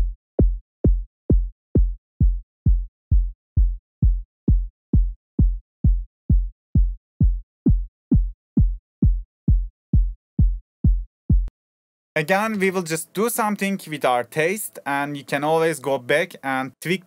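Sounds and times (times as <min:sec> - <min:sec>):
synthesized kick drum: 0:00.0 - 0:11.5.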